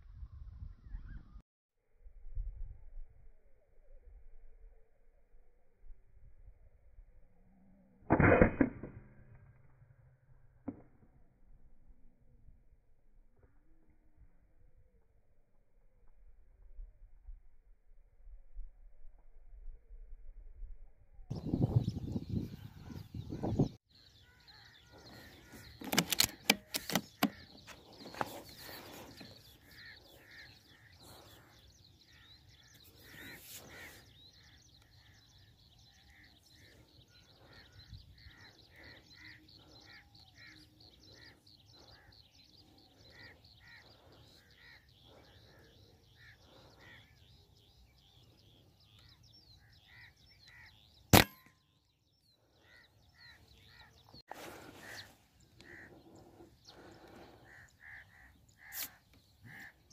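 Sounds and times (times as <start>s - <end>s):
birds calling: 21.3s - 59.9s
knocks and clicks: 25.8s - 28.3s
air rifle firing: 51.1s - 51.5s.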